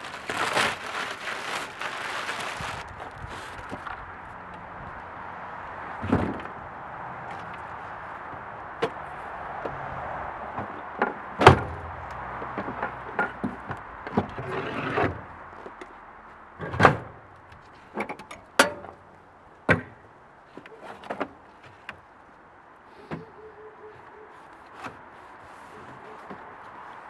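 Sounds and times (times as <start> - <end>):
rustling: 0.0 - 4.0.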